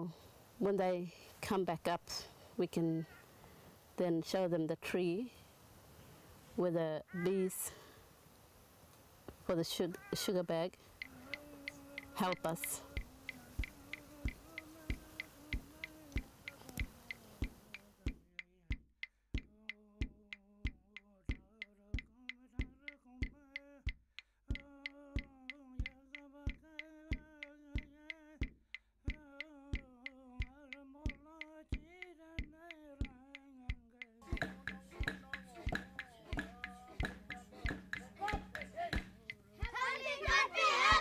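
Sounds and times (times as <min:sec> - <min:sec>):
person chanting: 0:09.6 - 0:18.1, 0:34.2 - 0:41.0
percussive clicks beat: 0:11.0 - 0:41.0.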